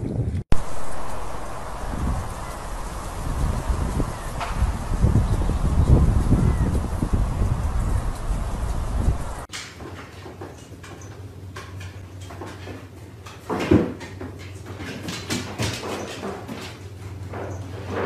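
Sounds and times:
wind noise: 0.0 - 9.5
paws knocking on wooden stairs: 11.6 - 17.6.

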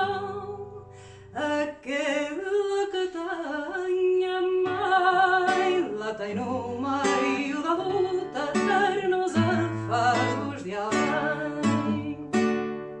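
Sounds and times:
person singing: 0.0 - 12.6
acoustic guitar strummed: 4.5 - 13.0.

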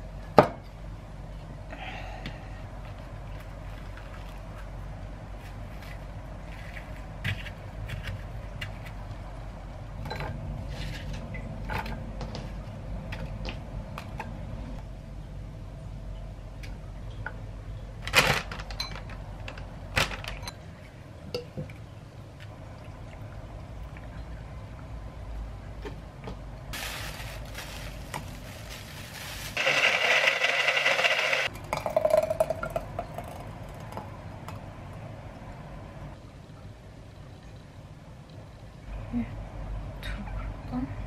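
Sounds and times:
plastic wrap crinkling: 26.8 - 30.4
blender motor running: 29.6 - 31.5.

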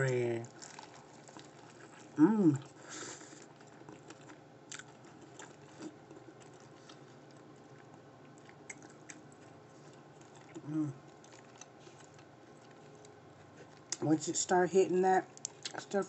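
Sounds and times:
close chewing with crunches: 0.0 - 14.4, 15.2 - 16.0
person humming: 2.2 - 2.6, 10.6 - 11.0.

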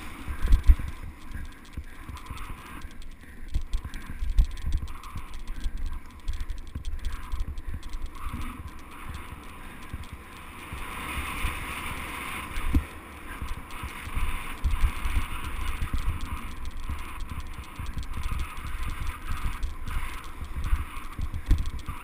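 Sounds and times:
bike rumbling over bumps: 0.0 - 11.4.

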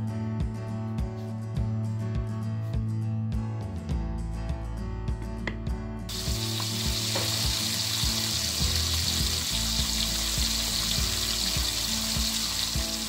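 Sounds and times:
bacon sizzling in a frying pan: 6.1 - 13.0.

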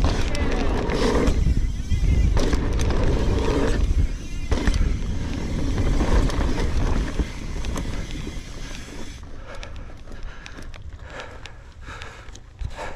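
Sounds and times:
wind rushing over microphone: 0.0 - 9.2
bike clicks and rattles: 0.0 - 12.9
tyres on dirt: 0.0 - 12.9.

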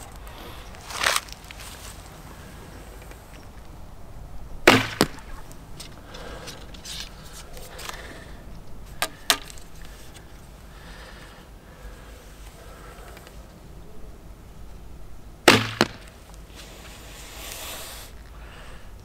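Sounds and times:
arrow hitting target: 4.6 - 5.9, 15.5 - 16.2.

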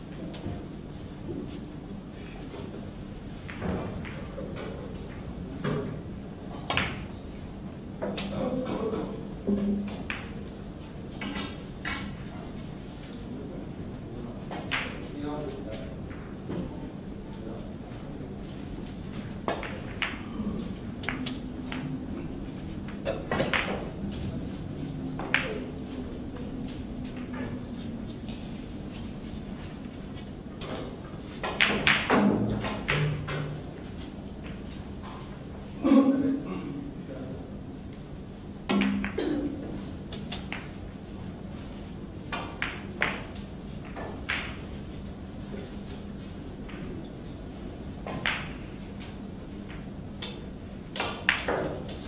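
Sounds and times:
low steady hum: 0.0 - 52.0
cue striking ball: 19.4 - 24.4, 25.2 - 29.1, 30.6 - 33.6, 38.7 - 39.7, 42.3 - 44.8, 49.7 - 52.0
billiard balls clicking: 31.3 - 34.7, 48.0 - 52.0.

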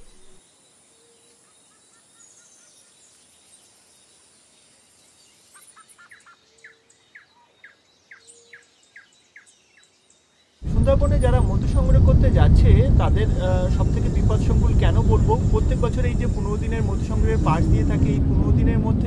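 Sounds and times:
birds calling: 0.0 - 0.4, 5.4 - 12.2
outdoor ambience: 0.0 - 19.0.

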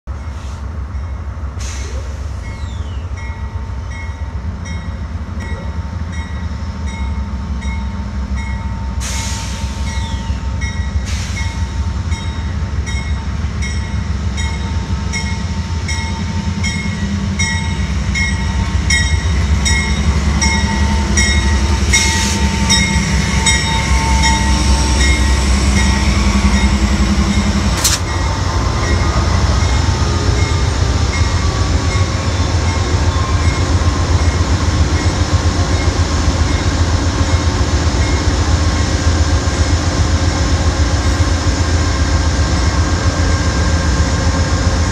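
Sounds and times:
diesel locomotive rumble: 0.1 - 44.9
locomotive bell ringing: 9.9 - 38.3.

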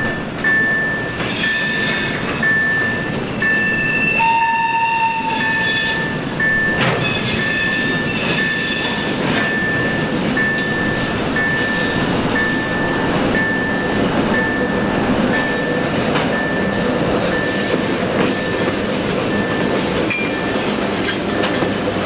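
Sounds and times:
diesel locomotive running: 0.0 - 22.0
level crossing warning signal: 2.4 - 8.6, 9.4 - 22.0
locomotive horn blast: 4.2 - 6.0.

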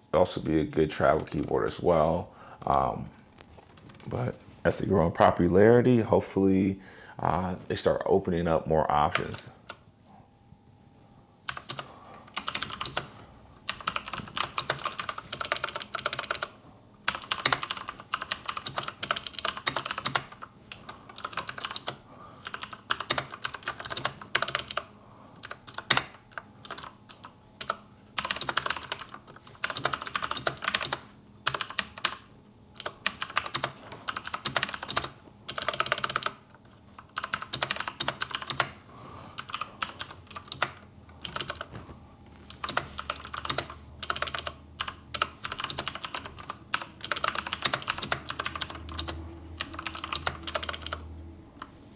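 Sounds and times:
mechanical keyboard typing: 11.5 - 13.1, 13.7 - 16.5, 17.1 - 36.4, 37.0 - 38.8, 39.4 - 41.7, 42.5 - 51.0.

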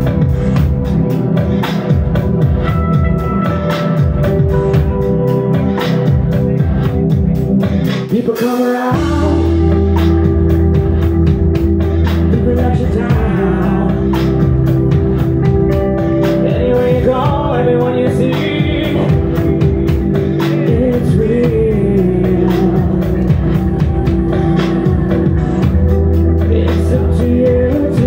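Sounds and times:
rock band playing live: 0.0 - 28.0
man singing: 6.1 - 10.4, 12.2 - 28.0.

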